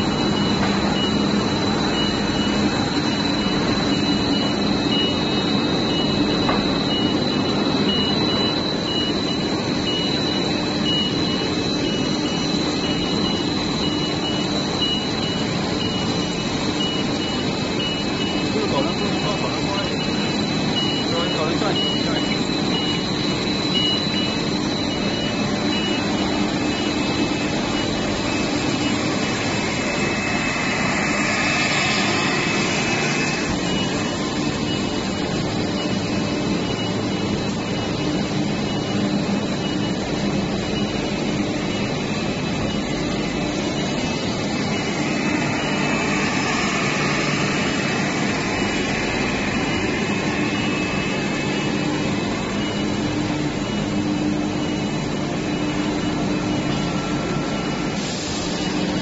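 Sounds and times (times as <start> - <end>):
machine hum and whir: 0.0 - 59.0
hiss: 58.0 - 58.7.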